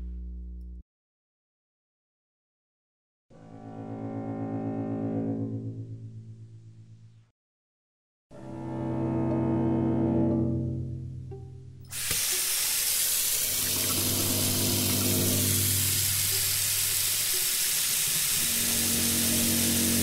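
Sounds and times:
low sustained musical tones: 8.4 - 11.8
faucet running into metal sink: 11.9 - 20.0.

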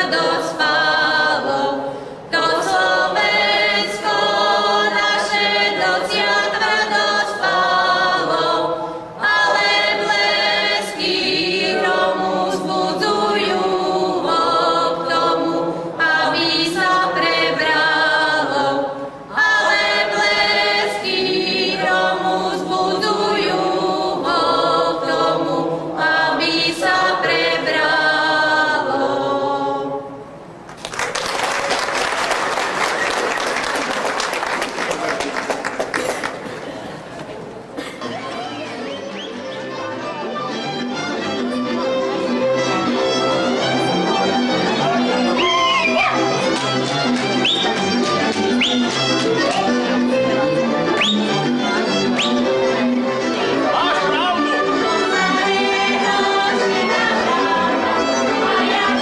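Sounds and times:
women singing unaccompanied: 0.0 - 30.1, 54.7 - 59.0
applause: 30.7 - 36.7.

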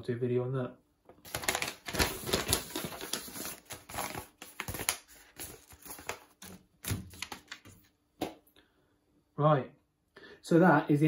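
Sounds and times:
paper rustling and crinkling: 1.1 - 7.9.

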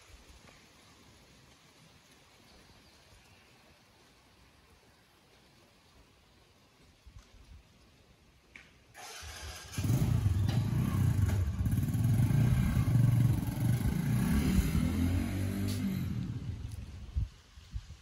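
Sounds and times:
motorcycle engine revving: 9.0 - 16.9.

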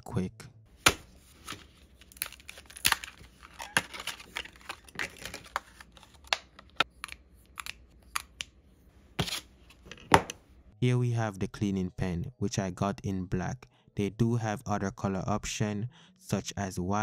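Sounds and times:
plastic sleeve crinkling: 0.9 - 7.8.

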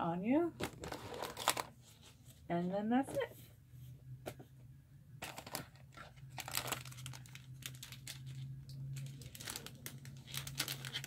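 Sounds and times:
paper prints rustling and crinkling: 5.2 - 11.0.

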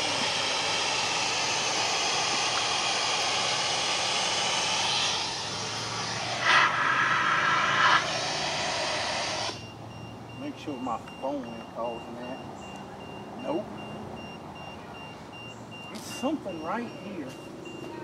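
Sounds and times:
steady dense hiss: 0.0 - 9.6.

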